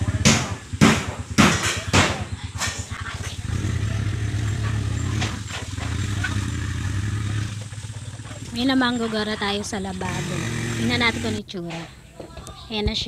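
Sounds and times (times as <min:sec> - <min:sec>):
small engine running: 0:00.0 - 0:11.4
sharp knocks: 0:00.2 - 0:02.9.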